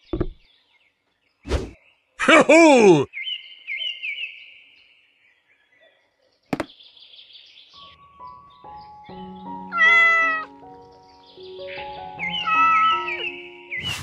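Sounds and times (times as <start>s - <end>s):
soft background music: 7.8s - 14.0s
cat meowing: 9.7s - 10.5s, 12.3s - 13.3s.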